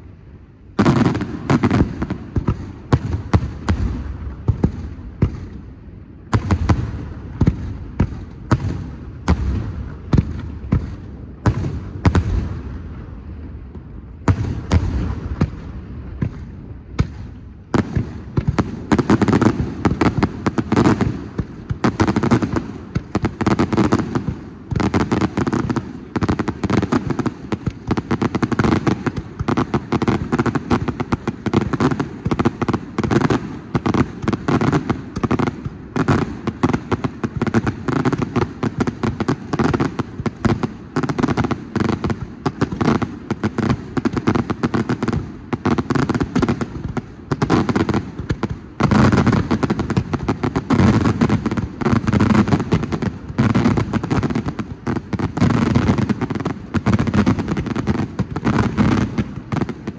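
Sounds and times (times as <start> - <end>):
fireworks bangs: 0.7 - 59.9.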